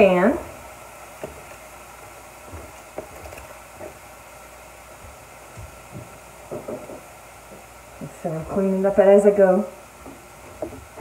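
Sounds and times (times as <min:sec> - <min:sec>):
vegetables sizzling in a skillet: 0:00.0 - 0:11.0.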